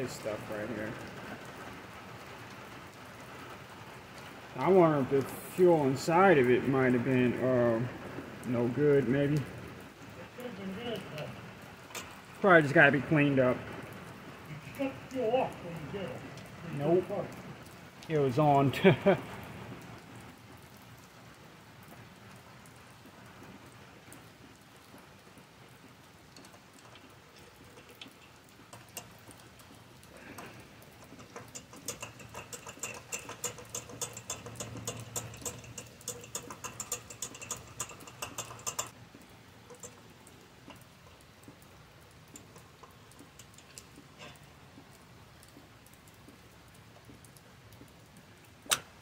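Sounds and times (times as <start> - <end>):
scrubbing clicks and scratching: 11.8 - 12.4, 26.2 - 46.4.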